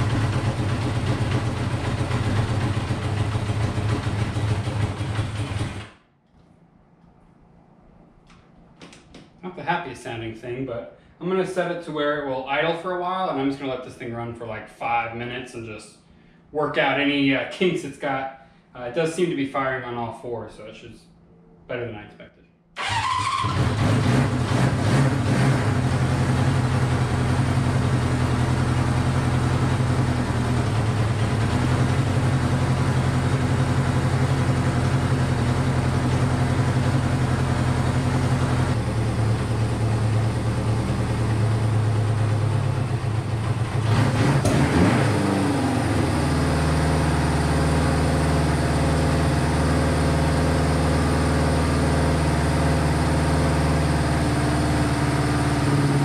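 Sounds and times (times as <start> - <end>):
motorcycle engine idling: 0.0 - 5.8, 25.8 - 43.9.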